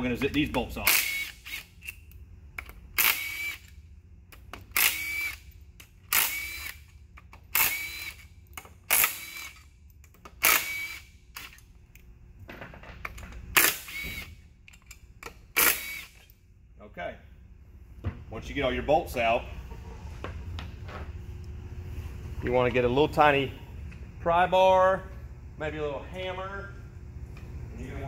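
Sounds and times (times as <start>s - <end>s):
impact wrench bursts: 0.4s - 2.0s, 2.6s - 3.8s, 4.5s - 11.6s, 13.5s - 14.4s, 15.5s - 16.3s.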